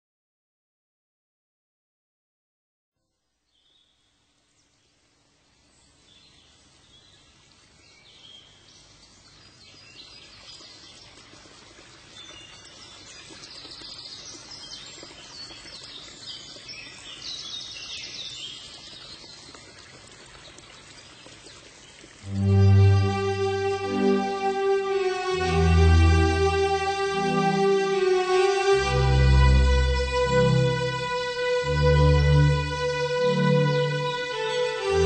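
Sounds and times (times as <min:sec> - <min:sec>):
small birds chirping: 0:05.7 - 0:23.1
loud string music: 0:22.3 - 0:35.0.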